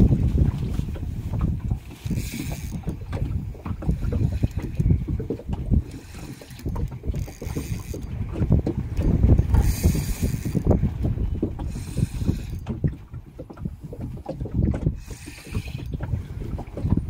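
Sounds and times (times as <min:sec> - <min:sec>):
water against boat: 0:00.0 - 0:17.0
wind on microphone: 0:00.0 - 0:17.0
fishing reel whirring: 0:01.9 - 0:03.2, 0:03.8 - 0:05.1, 0:05.8 - 0:10.8, 0:11.6 - 0:12.6, 0:15.0 - 0:15.9.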